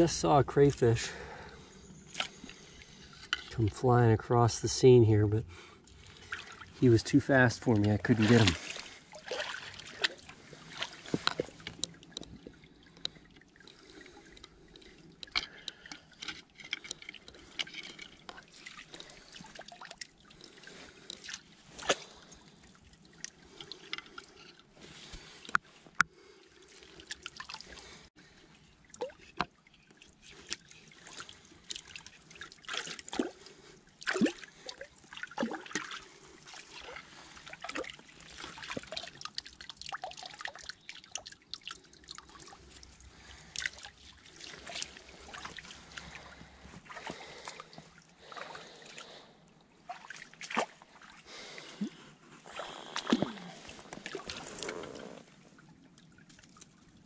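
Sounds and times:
stream trickling: 0.0 - 57.0
hands splashing in creek water: 7.6 - 12.4, 18.2 - 24.2, 28.8 - 55.2.

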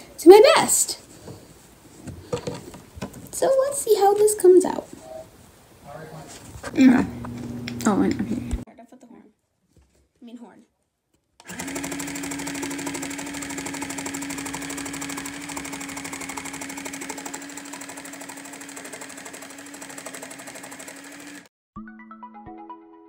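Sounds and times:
toy sewing machine running: 11.4 - 21.5.

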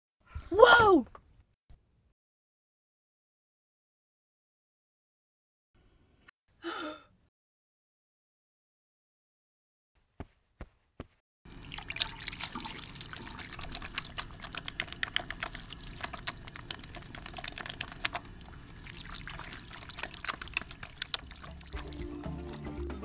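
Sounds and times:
running water splashing: 11.5 - 22.6.

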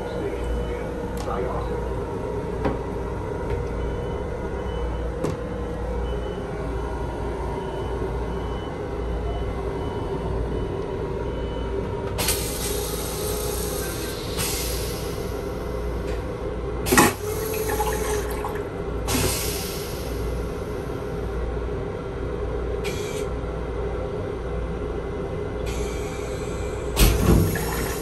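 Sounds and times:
running train hum: 0.0 - 28.0
toilet flushing water swirling: 16.9 - 18.8, 27.1 - 28.0.

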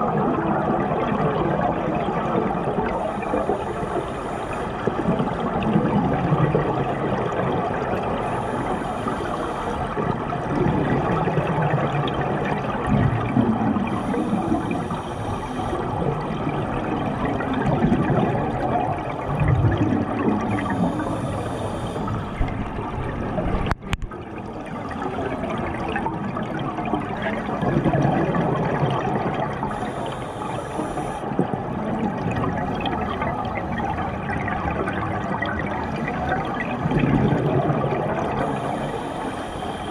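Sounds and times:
exhaled bubbles gurgling: 0.0 - 39.9
regulator inhale hiss: 3.0 - 4.9, 8.2 - 10.0, 13.8 - 15.9, 20.5 - 22.4, 29.7 - 31.4, 38.4 - 39.9.

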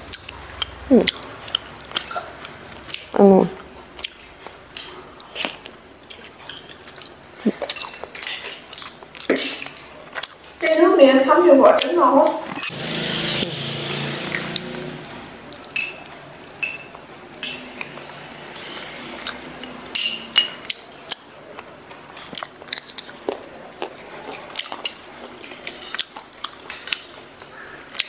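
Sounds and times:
spoons clinking on ceramic bowls: 16.6 - 17.7, 19.6 - 20.6.

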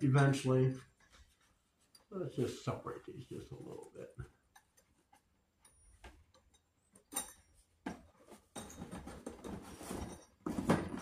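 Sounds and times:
metal clamps clinking: 4.4 - 7.8.

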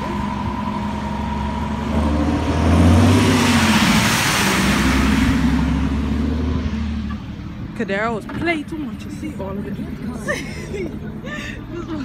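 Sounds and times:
car engine revving: 0.0 - 7.2.

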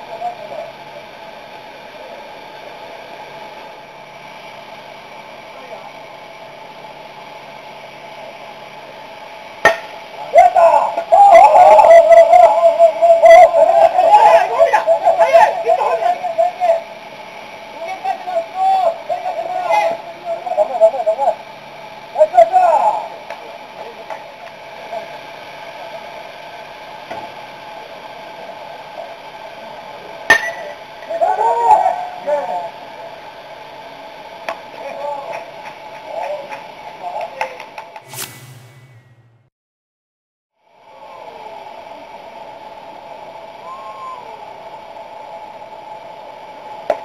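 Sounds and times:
steady background noise: 0.0 - 39.5
players shouting: 10.3 - 16.6.

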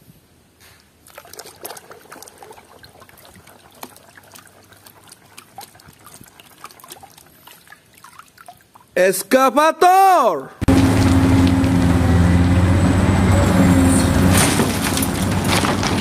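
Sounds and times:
water splashing in plastic tub: 1.0 - 9.0.

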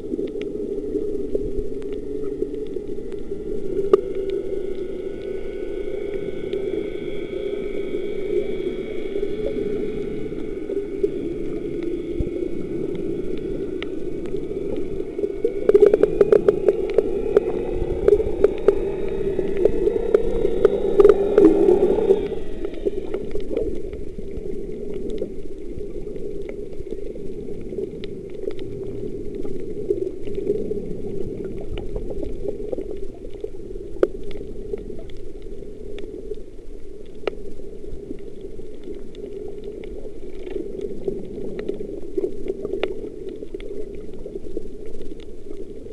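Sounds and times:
bubbling: 0.0 - 45.9
muffled underwater hum: 0.0 - 45.9
underwater clicks: 0.2 - 36.4
high whining tones: 2.2 - 24.2.

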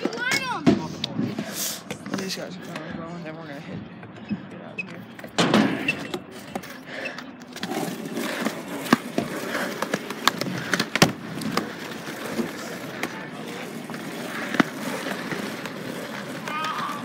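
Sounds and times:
skateboard wheels rolling on concrete: 0.0 - 17.0
skateboard clacks: 5.2 - 17.0.

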